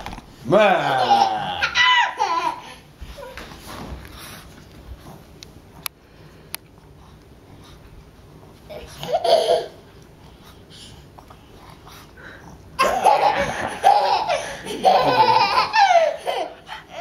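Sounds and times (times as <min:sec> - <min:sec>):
toddler laughing loudly: 0:00.9 - 0:02.8, 0:09.0 - 0:09.8, 0:12.8 - 0:17.0.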